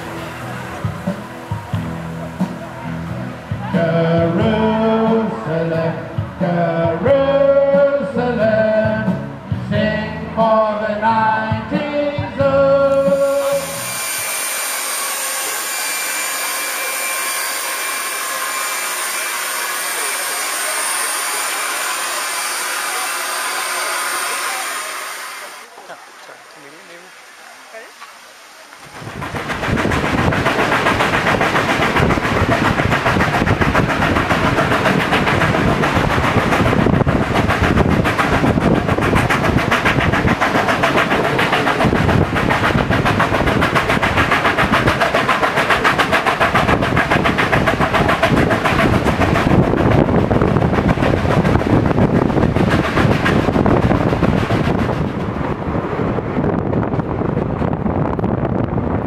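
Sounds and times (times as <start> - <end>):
train running rush: 0.0 - 59.0
wheel-on-rail clatter: 28.8 - 55.6.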